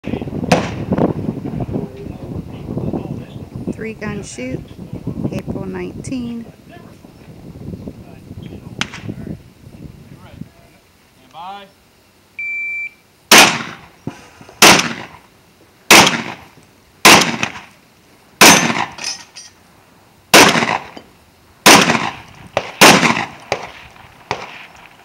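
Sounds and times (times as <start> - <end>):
shotgun shots: 0.5 - 0.9, 13.3 - 13.9, 14.6 - 15.2, 15.9 - 17.7, 18.4 - 19.1, 20.3 - 21.0, 21.6 - 24.8
shot timer beep: 12.4 - 13.0.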